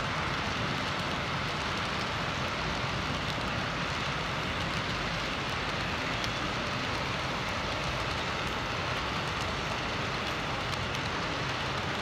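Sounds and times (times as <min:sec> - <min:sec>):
model train wheels rattling on rails: 0:00.0 - 0:12.0
faint clicks: 0:04.6 - 0:08.6.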